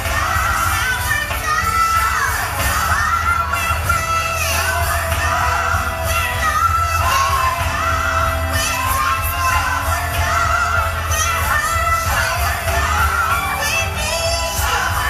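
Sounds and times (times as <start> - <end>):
gospel song over sound system: 0.0 - 15.0.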